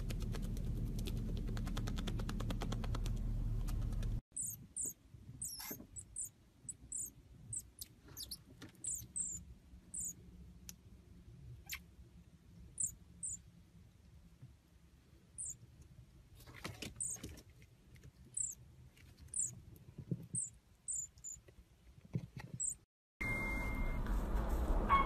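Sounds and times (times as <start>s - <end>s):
marmoset high-pitched chirps: 4.4s - 10.2s, 11.6s - 11.8s, 12.8s - 13.4s, 15.4s - 15.6s, 18.4s - 18.6s, 19.3s - 19.6s, 20.4s - 21.4s, 22.6s - 22.8s.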